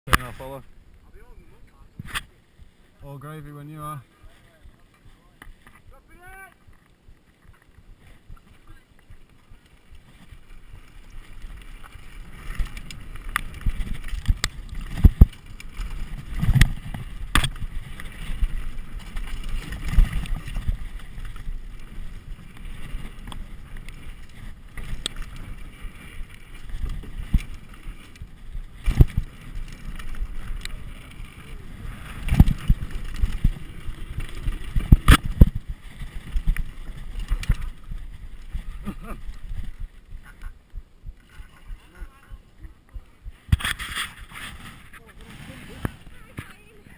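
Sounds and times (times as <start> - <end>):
bike tyres rumbling on gravel: 0.1 - 46.9
wind on microphone: 10.4 - 46.9
bike knocking and clattering: 10.6 - 30.9.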